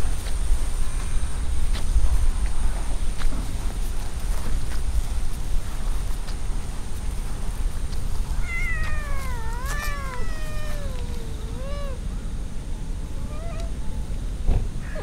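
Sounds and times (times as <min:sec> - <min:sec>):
steady low rumble: 0:00.0 - 0:15.0
cat meowing: 0:08.4 - 0:12.0, 0:13.2 - 0:13.8.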